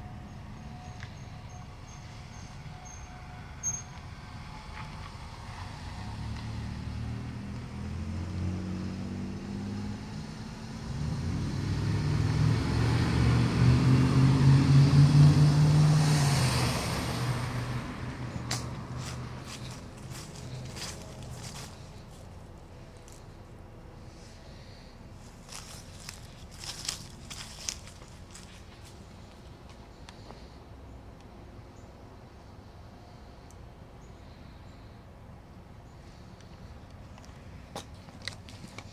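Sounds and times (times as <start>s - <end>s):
vehicle driving by: 0.0s - 29.4s.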